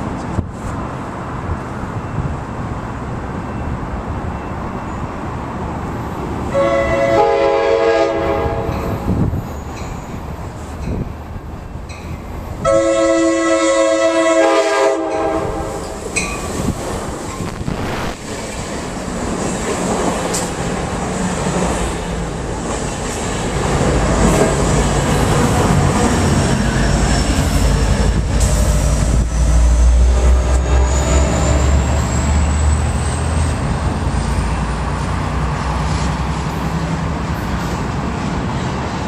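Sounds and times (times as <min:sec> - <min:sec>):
diesel locomotive: 0:00.0 - 0:39.0
train cars rumbling past: 0:00.0 - 0:39.0
train horn chord: 0:06.5 - 0:09.0, 0:12.6 - 0:16.0.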